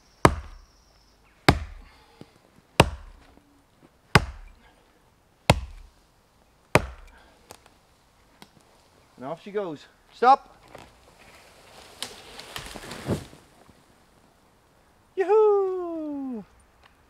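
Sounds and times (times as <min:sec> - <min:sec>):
axe chopping into tree trunk: 0:00.2 - 0:00.6, 0:01.5 - 0:01.9, 0:02.8 - 0:03.4, 0:04.2 - 0:04.6, 0:05.5 - 0:05.9, 0:06.8 - 0:07.2.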